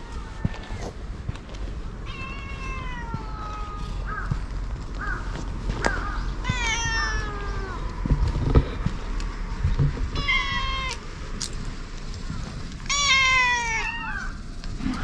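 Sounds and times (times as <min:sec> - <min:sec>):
cat meowing: 0:02.0 - 0:04.2, 0:06.4 - 0:08.0, 0:10.2 - 0:11.0, 0:12.8 - 0:14.4.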